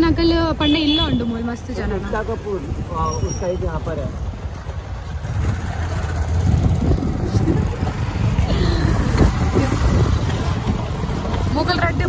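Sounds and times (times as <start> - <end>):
road noise rumble: 0.0 - 12.0
wind buffeting microphone: 5.3 - 12.0.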